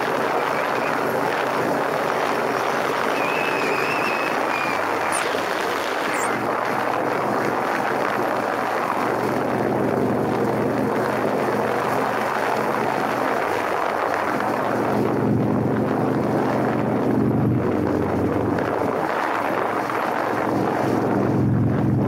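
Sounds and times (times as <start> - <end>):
motorcycle engine running: 0.0 - 7.4
wind rush on microphone: 0.0 - 22.0.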